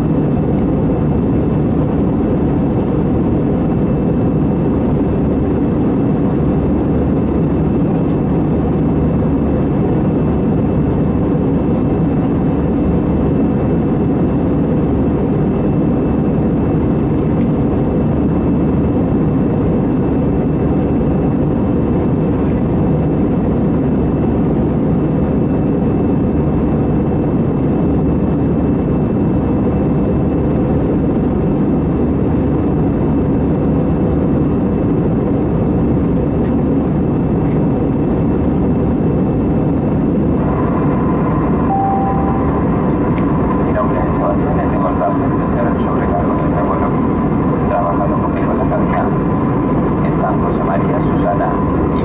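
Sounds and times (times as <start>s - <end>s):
jet engines droning: 0.0s - 52.0s
rushing airflow: 34.3s - 52.0s
thin high whine: 40.2s - 52.0s.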